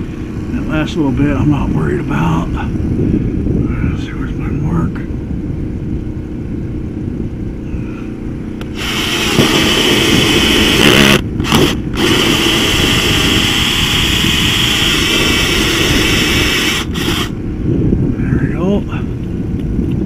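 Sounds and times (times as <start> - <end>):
low rumble: 0.0 - 20.0
drill hole saw grinding whine: 8.6 - 17.4.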